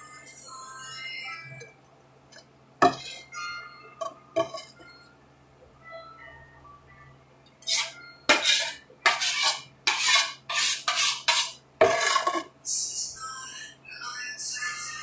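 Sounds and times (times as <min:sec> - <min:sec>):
putty knives scraping together: 0:07.6 - 0:12.5.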